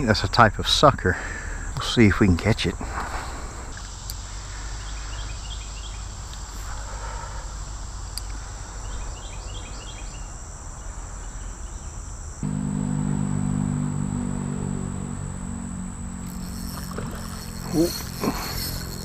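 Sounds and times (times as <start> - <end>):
insects droning: 0.0 - 19.0
rapid short chirps: 16.3 - 19.0.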